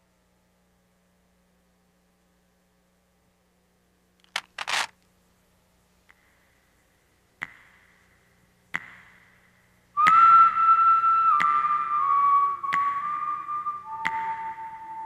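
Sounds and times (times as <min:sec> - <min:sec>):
handling clicks: 0:04.2 - 0:05.0
steady whistle-like music tone: 0:10.0 - 0:15.0.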